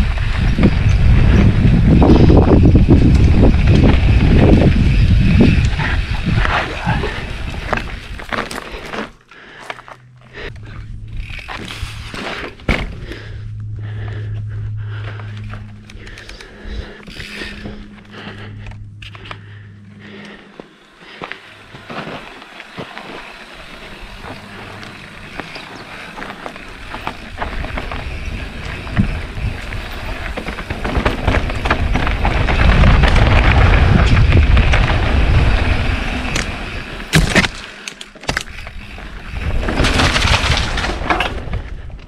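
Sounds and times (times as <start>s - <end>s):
wind rushing over microphone: 0.0s - 8.3s, 27.3s - 37.1s
bike rattling: 0.0s - 42.0s
bike tyres crunching over stones: 0.0s - 42.0s.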